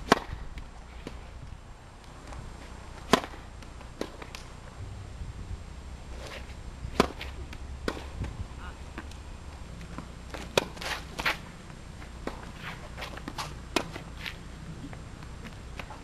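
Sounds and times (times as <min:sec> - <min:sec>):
tennis racket hitting ball: 0:00.0 - 0:00.4, 0:03.0 - 0:04.5, 0:06.2 - 0:08.3, 0:09.8 - 0:14.4.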